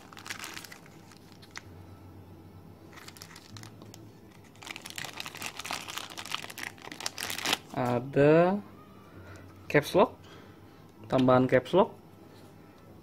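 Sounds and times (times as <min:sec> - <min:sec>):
plastic bag crinkling: 0:00.0 - 0:01.6, 0:02.9 - 0:07.9.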